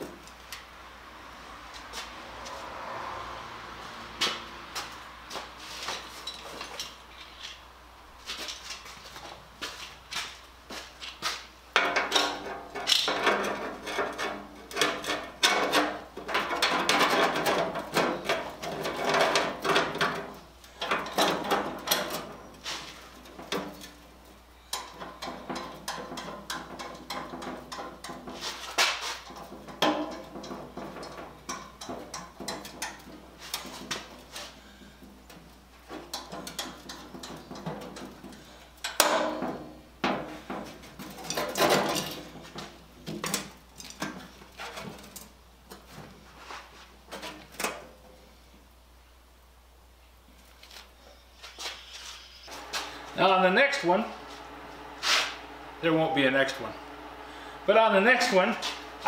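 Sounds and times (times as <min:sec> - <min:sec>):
steel sheet clanking and scraping: 0:11.8 - 0:24.1, 0:24.7 - 0:34.8, 0:35.9 - 0:45.3.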